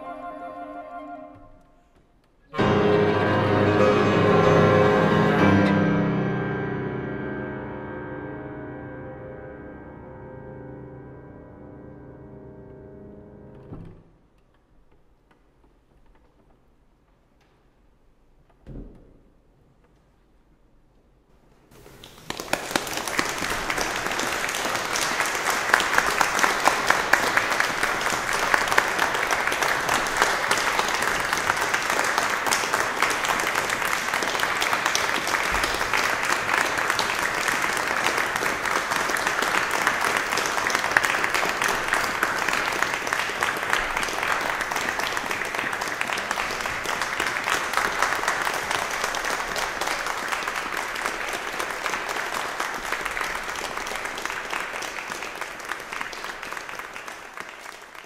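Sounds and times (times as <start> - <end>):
audience applauding: 21.8 - 58.0.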